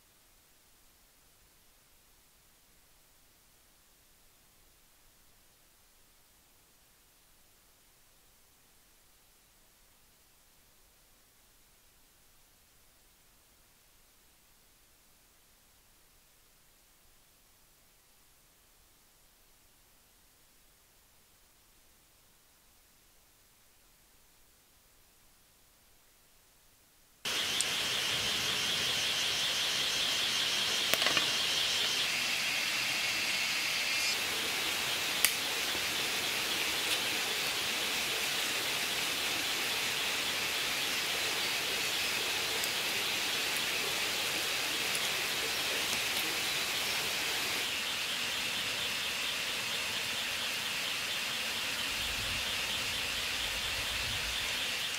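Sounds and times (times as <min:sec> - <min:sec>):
steady hiss: 0:00.0 - 0:54.9
high pulsing insect trill: 0:27.3 - 0:54.9
sharp clicks: 0:30.8 - 0:31.5.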